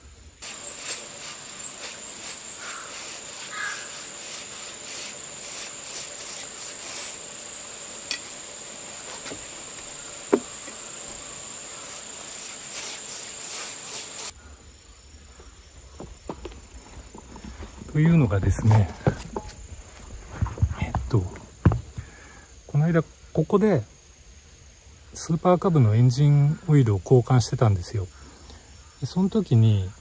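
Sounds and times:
high insect trill: 0.0s - 30.0s
brush scraping wooden planks: 0.4s - 14.3s
pulsed insect chirps: 0.4s - 15.2s.

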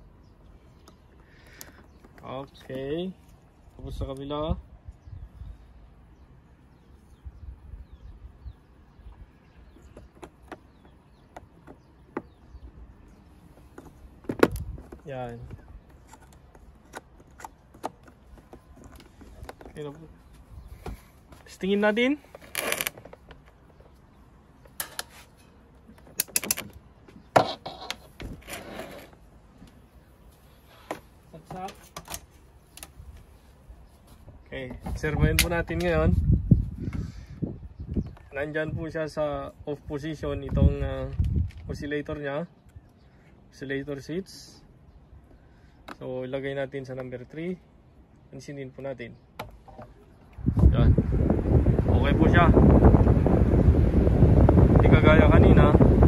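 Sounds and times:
plastic fan knobs clicking: 13.8s - 20.1s, 25.9s - 26.8s, 34.9s - 36.0s
short scraping rasp: 27.4s - 29.2s.

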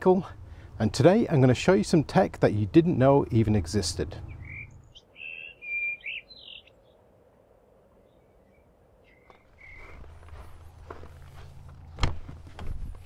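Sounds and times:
faint outdoor hiss: 0.0s - 13.0s
bird chirping: 4.2s - 7.1s, 8.0s - 10.1s.

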